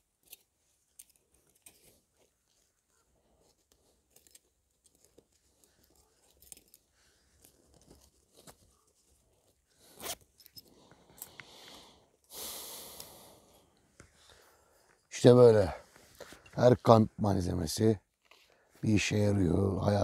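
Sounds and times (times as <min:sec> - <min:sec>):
gear clicks and rustles: 0:00.2 - 0:11.3
zipper pull: 0:09.8 - 0:10.6.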